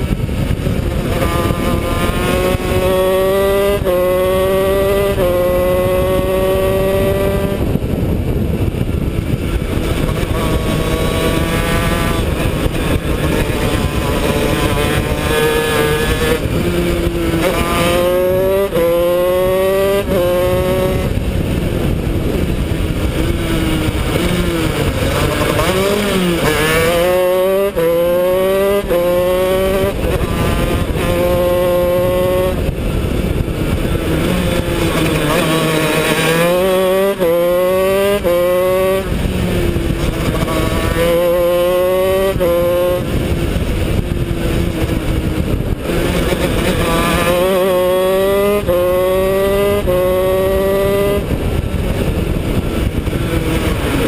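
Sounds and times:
two-stroke kart engine revving: 0.0 - 54.0.

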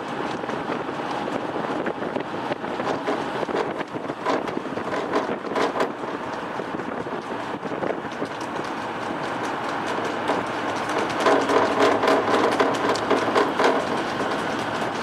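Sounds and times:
moving vehicle running noise: 0.0 - 15.0
wind buffeting microphone: 0.0 - 15.0
sharp knocks: 8.2 - 14.8.

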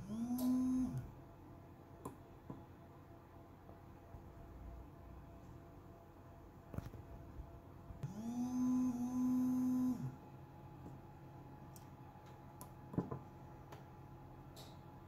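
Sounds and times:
vibration motor buzzing: 0.0 - 1.2, 8.0 - 10.2.

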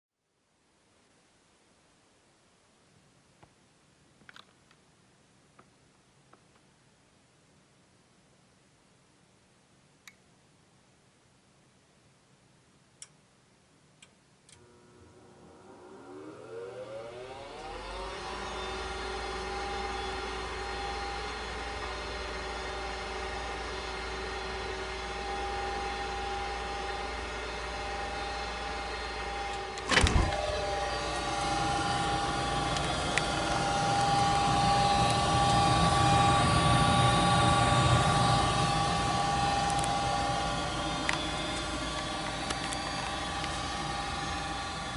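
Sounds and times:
furnace inducer motor humming: 14.5 - 44.9
furnace thump: 29.8 - 31.4.

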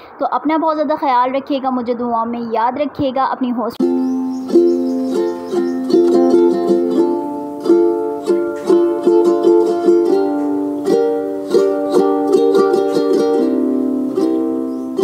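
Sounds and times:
plucked string music: 3.8 - 15.0.

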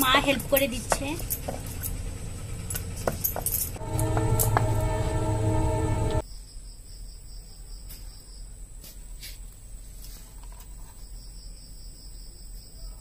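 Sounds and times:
background music: 3.8 - 6.2
faint steady high whine: 3.8 - 6.2.

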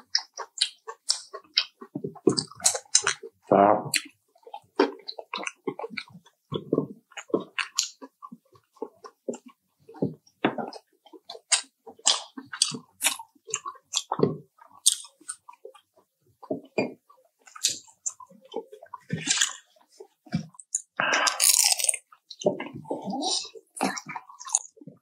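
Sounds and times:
chewing and crunching fried chicken: 0.0 - 25.0.

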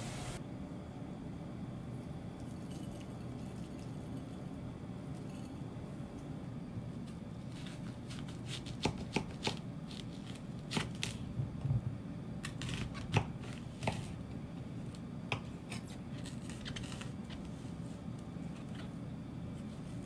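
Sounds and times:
knife crunching through onion: 7.4 - 11.3, 15.6 - 17.5.

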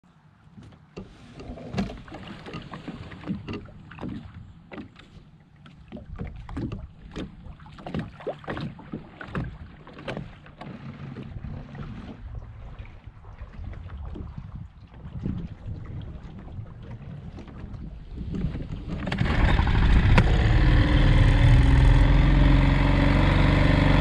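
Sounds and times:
boat knocking and creaking: 0.4 - 24.0
water lapping against hull: 0.5 - 24.0
wind rumble on microphone: 11.2 - 24.0.

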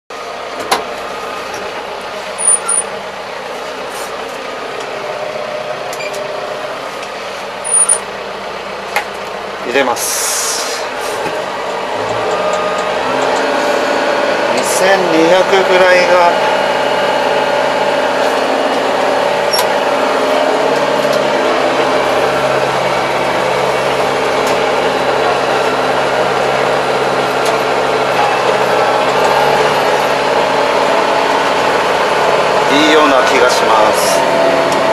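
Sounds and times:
diesel tractor engine running: 0.1 - 34.9
short high-pitched beeps: 7.7 - 8.0.

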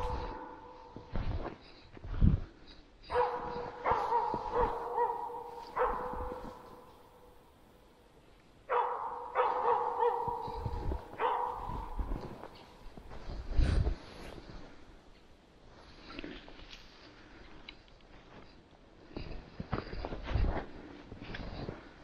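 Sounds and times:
dog barking: 0.0 - 1.0, 3.0 - 7.0, 8.7 - 12.7.

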